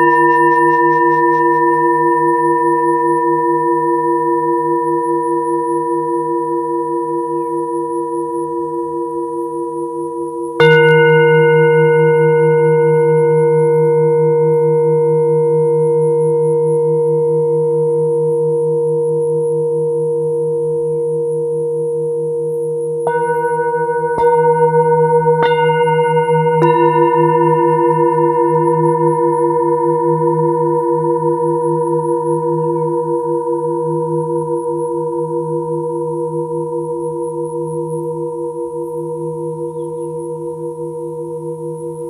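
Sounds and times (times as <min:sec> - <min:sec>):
mallet striking singing bowl: 0:00.0 - 0:02.1, 0:23.1 - 0:28.8
singing bowl ringing: 0:00.0 - 0:42.0.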